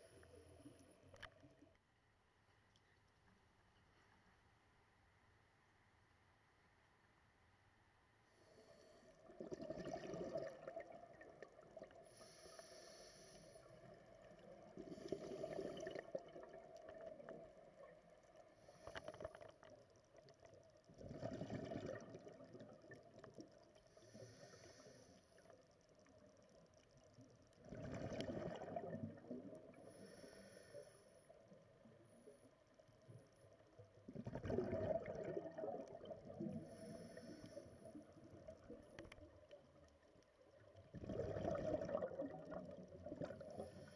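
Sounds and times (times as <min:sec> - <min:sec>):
exhaled bubbles rumbling underwater: 0:09.2 - 0:12.4, 0:13.6 - 0:18.8, 0:19.6 - 0:24.4, 0:25.8 - 0:30.2, 0:31.5 - 0:43.9.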